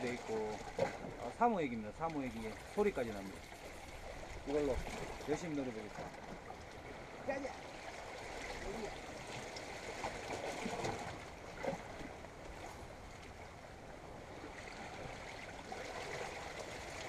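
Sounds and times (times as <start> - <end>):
small waves washing against rocks: 0.0 - 13.3.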